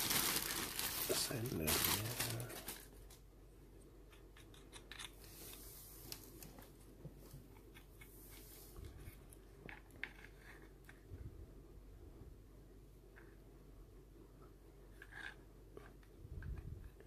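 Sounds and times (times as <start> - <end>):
soft plastic rustle: 0.0 - 3.2, 5.1 - 11.4.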